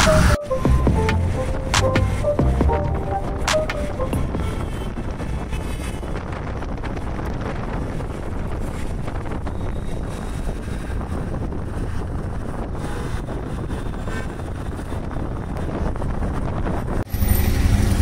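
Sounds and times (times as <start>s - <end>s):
wind rushing over microphone: 0.0s - 18.0s
auto rickshaw engine and road rumble: 4.1s - 18.0s.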